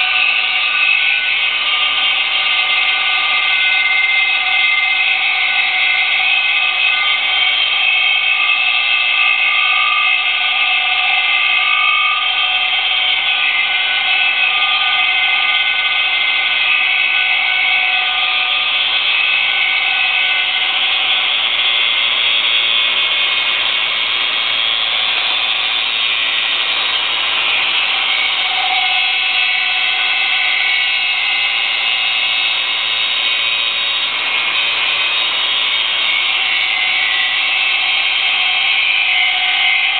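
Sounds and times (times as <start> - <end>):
angle grinder grinding metal: 0.0 - 39.9.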